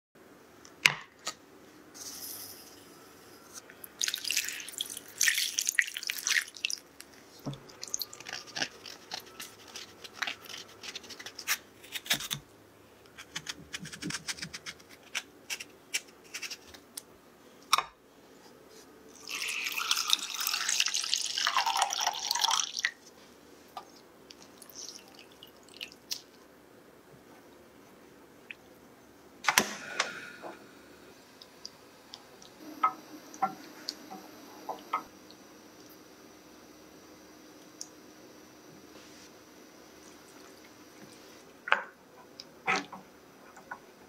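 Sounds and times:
water poured into saucepan: 4.0 - 6.8, 19.2 - 22.8
scrubbing with salt in glass bowl: 8.1 - 11.5.

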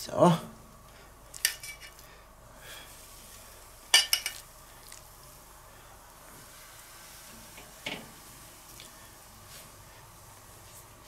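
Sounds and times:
metal tongs clinking on bowl: 3.9 - 4.4.

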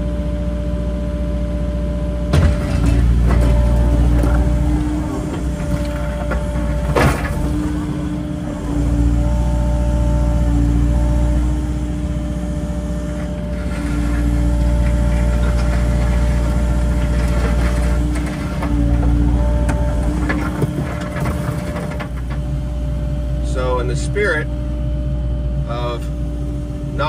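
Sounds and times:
excavator diesel engine running: 0.0 - 27.0.

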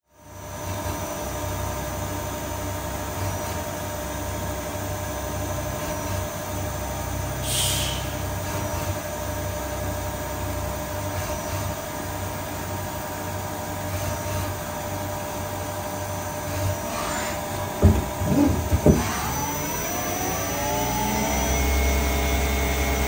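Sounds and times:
lathe humming with tones: 8.9 - 23.0.

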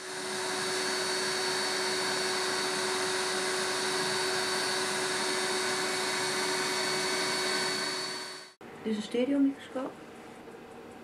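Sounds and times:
small vacuum cleaner running: 0.0 - 8.6.

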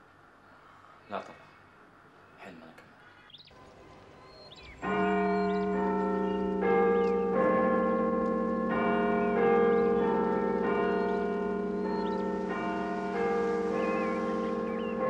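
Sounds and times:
slow bell-like music: 4.7 - 15.0.

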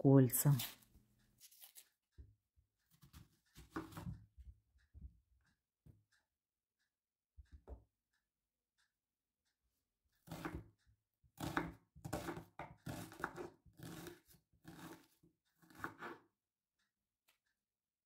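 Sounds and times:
knife slicing onion on board: 2.9 - 4.2, 10.2 - 10.7, 11.4 - 16.3.

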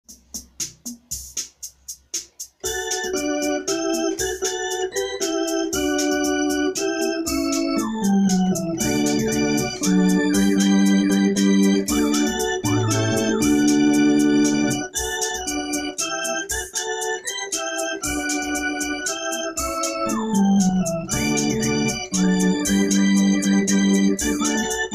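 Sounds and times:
electronic organ playing hymn chords: 2.6 - 24.9
bass line: 5.0 - 14.9, 19.6 - 24.9.

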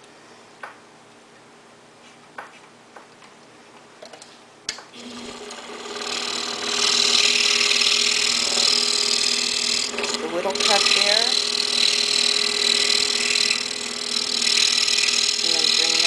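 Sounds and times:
scroll saw cutting wood: 5.0 - 16.0.

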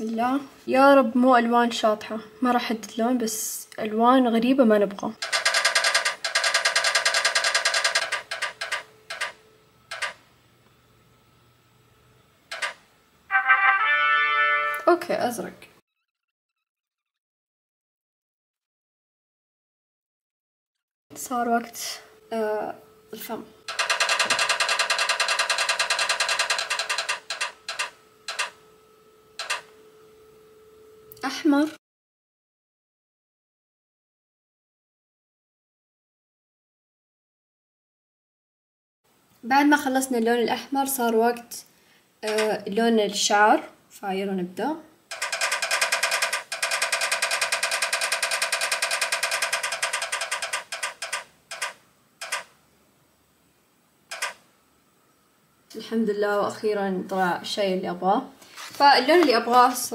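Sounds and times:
faint steady hum: 0.0 - 13.8, 21.1 - 31.8, 39.1 - 59.9
spinning wheel ticking: 5.2 - 10.2, 12.5 - 12.8, 23.7 - 28.6, 29.4 - 29.7, 45.1 - 52.5, 54.1 - 54.4.

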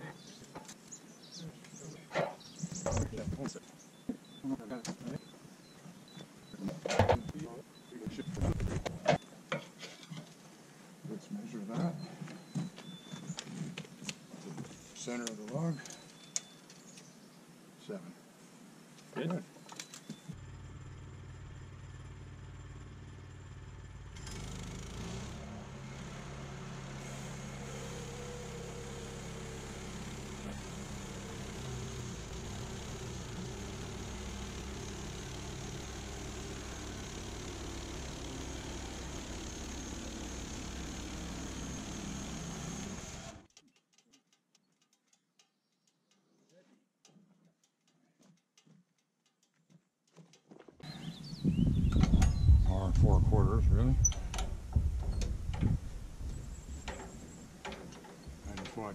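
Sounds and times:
small gasoline engine running: 20.3 - 43.5
bandsaw sawmill cutting log: 24.0 - 43.5
faint clicks: 43.5 - 50.4.

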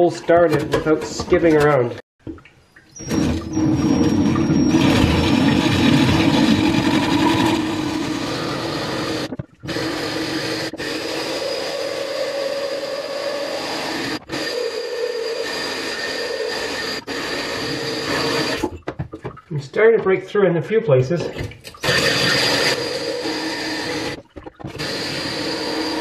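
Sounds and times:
drill hole saw grinding glass: 3.0 - 18.7, 21.8 - 26.0.

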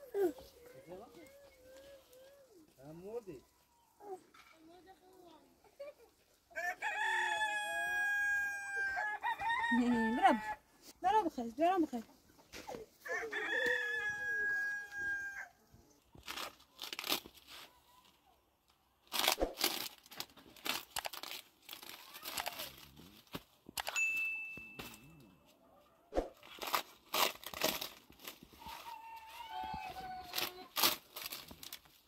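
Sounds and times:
rooster crowing: 6.5 - 10.6, 13.0 - 15.5
flatbread rustling and crackling: 26.3 - 32.0.

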